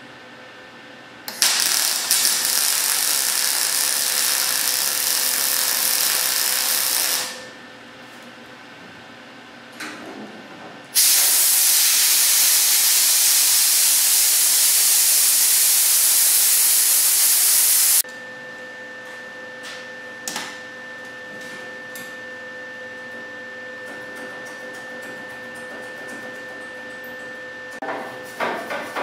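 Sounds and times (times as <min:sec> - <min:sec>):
compressed air blow gun hissing: 0:11.0 - 0:18.0.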